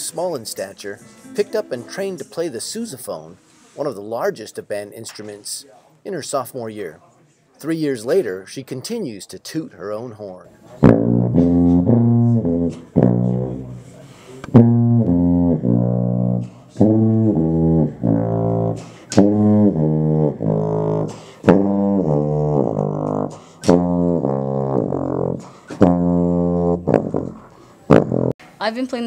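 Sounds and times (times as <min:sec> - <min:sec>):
sousaphone playing low notes: 0:01.1 - 0:02.2, 0:14.5 - 0:27.4.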